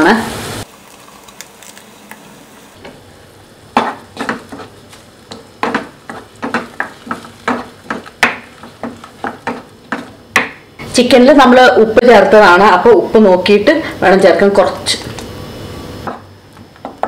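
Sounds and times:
wooden spatula scraping a pan: 0:03.8 - 0:10.2.

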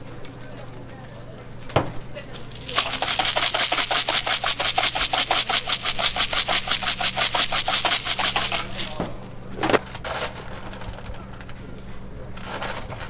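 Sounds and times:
plastic shaker bottle rattling: 0:02.4 - 0:09.1.

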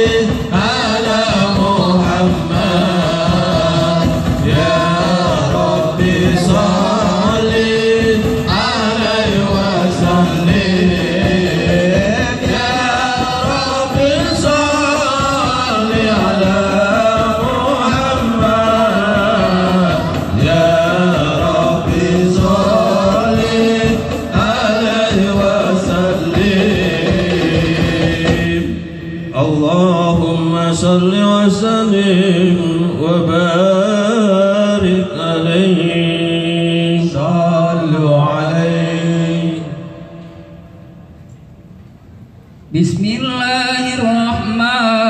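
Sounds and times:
frame drums: 0:00.0 - 0:31.0
men chanting together: 0:00.0 - 0:40.3.

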